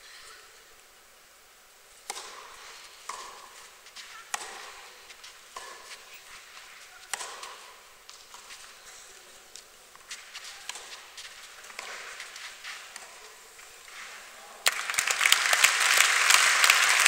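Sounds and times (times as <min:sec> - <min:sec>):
tennis ball hit by racket: 0:02.0 - 0:08.7, 0:10.0 - 0:13.3.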